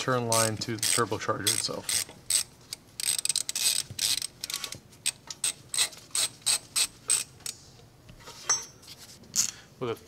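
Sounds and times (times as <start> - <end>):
hand ratchet clicking: 0.2 - 7.6.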